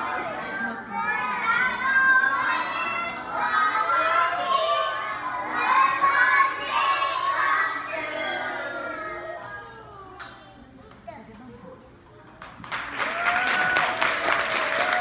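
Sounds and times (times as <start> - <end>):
children singing together: 0.0 - 10.4.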